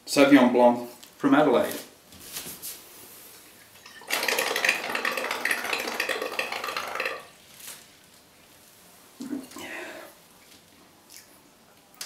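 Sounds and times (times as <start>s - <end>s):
wine glugging from a bottle: 3.8s - 7.3s.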